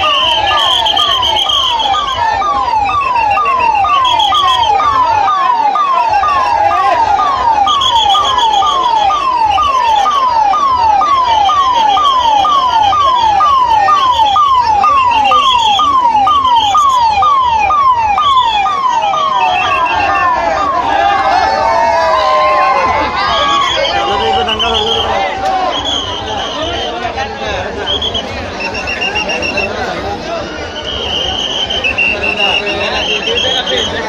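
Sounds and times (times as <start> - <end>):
ambulance siren falling tone: 0.0 - 27.1.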